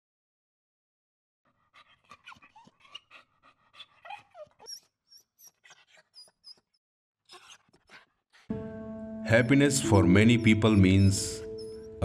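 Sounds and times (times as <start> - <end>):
dog panting: 1.6 - 6.6, 10.7 - 12.0
dog whimpering: 1.8 - 8.5, 10.4 - 12.0
high thin squeaks: 10.5 - 12.0.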